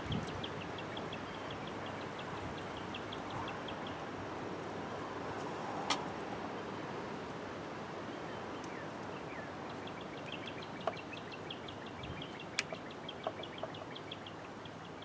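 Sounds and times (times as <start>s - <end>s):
bird chirping: 0.0s - 4.0s, 8.1s - 15.0s
faint outdoor background: 0.0s - 15.0s.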